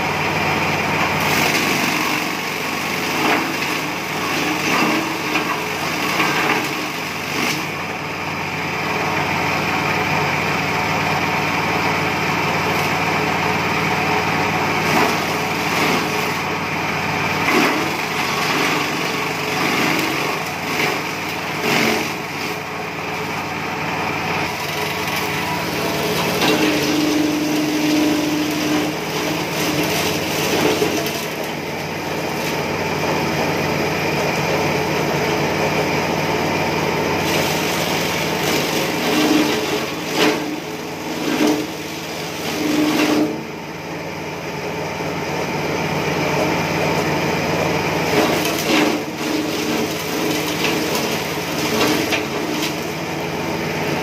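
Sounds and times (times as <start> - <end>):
small petrol engine running: 0.0 - 54.0
grass being chopped: 1.1 - 7.8, 14.7 - 16.4, 17.3 - 22.6, 24.4 - 32.7, 37.2 - 43.4, 48.0 - 53.1.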